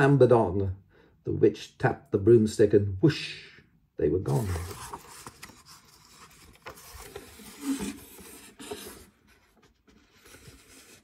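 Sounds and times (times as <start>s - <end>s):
book pages turning: 4.3s - 11.0s.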